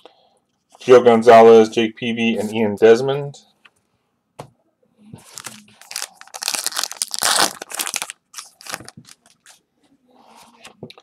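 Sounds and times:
wrapper tearing and crinkling: 5.3 - 9.6.

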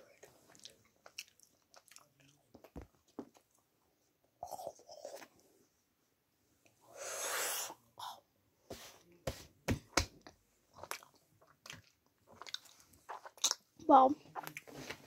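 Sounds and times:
chocolate crunching when chewed: 0.1 - 2.7, 10.7 - 13.7.

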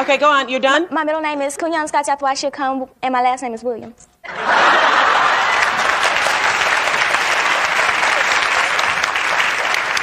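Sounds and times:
audience applauding: 4.5 - 10.0.

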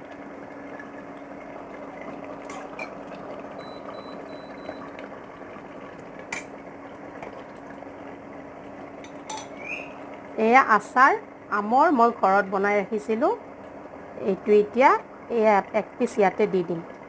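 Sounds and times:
curry bubbling and hissing: 0.0 - 17.0
cooktop short beeps: 3.6 - 4.9
ladle clinking against pot: 9.0 - 9.7.

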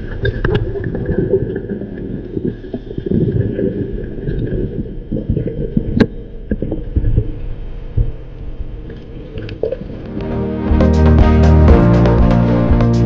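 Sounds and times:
muffled underwater rumbling: 0.0 - 10.2.

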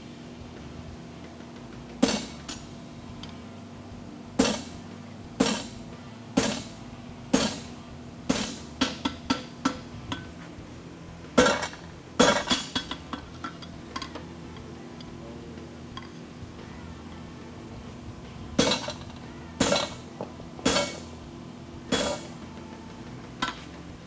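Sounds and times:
hammer clanking on metal punch: 2.0 - 2.7, 4.4 - 4.7, 5.4 - 5.8, 6.4 - 10.3, 11.4 - 14.2, 18.6 - 21.1, 21.9 - 22.4.

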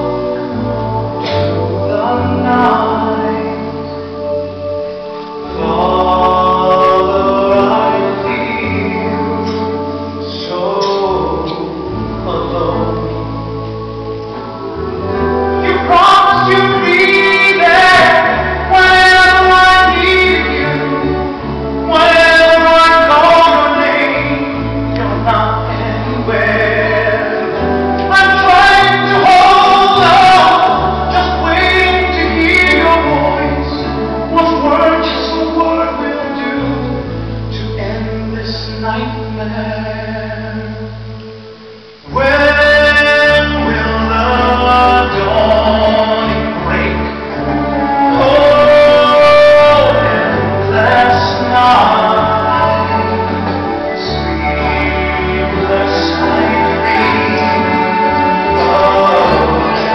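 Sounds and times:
long held bass notes: 0.0 - 59.9
several voices singing: 5.2 - 33.8, 43.6 - 59.9.

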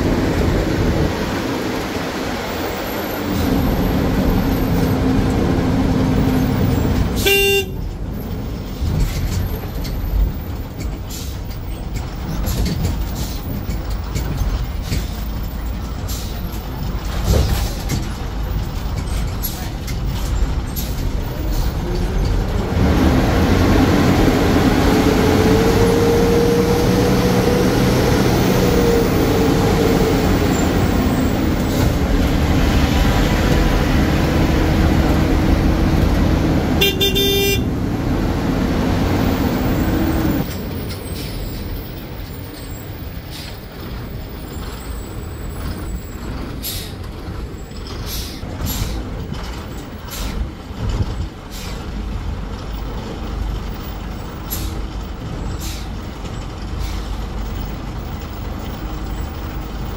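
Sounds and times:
bus diesel engine running: 0.0 - 59.9
bus horn: 7.1 - 8.0, 36.7 - 37.8.

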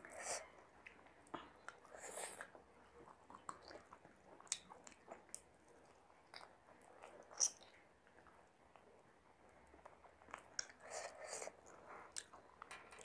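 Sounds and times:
person chewing food: 0.1 - 8.9, 9.7 - 13.0.

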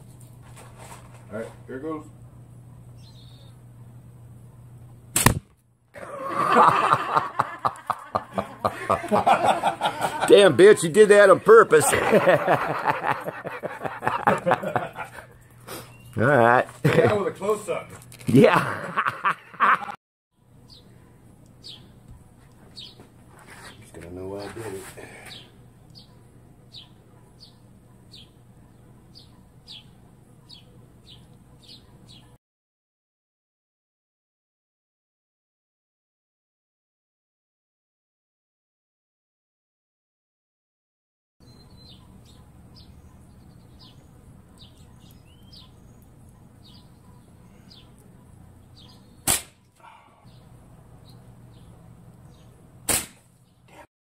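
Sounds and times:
low background hum: 0.0 - 32.4
small bird chirping: 2.8 - 4.2, 15.4 - 16.2, 20.4 - 22.1, 22.7 - 23.9, 25.3 - 32.4, 41.4 - 49.7
slingshot firing cracks: 5.1 - 5.6, 49.2 - 49.7, 52.8 - 53.3.

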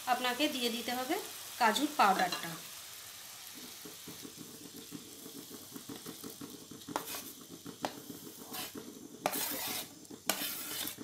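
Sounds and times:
sugar syrup bubbling: 3.2 - 11.0.

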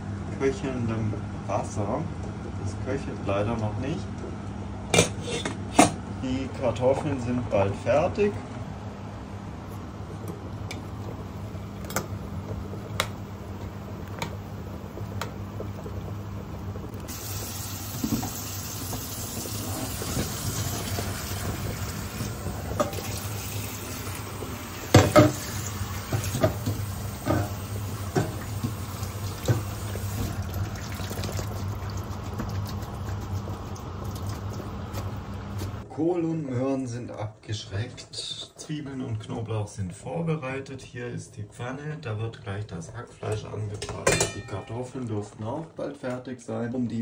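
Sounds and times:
water running into metal sink: 17.0 - 35.2
metal clanks against sink: 43.8 - 44.7.

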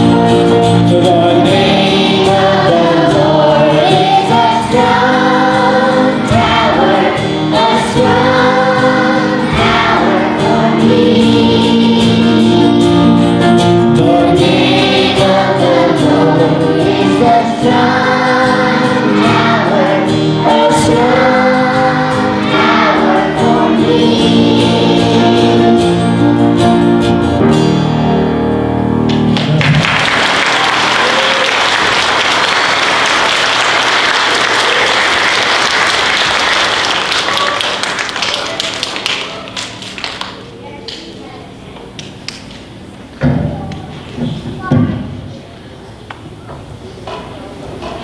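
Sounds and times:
guitar: 0.0 - 32.2
piano: 0.0 - 48.0
applause: 29.1 - 40.5.

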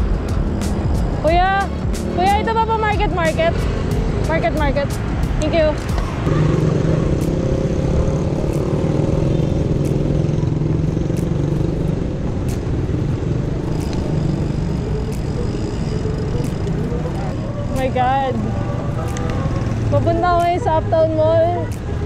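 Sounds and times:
vehicle engine hum: 0.0 - 22.0
sharp clicks: 12.3 - 18.0.

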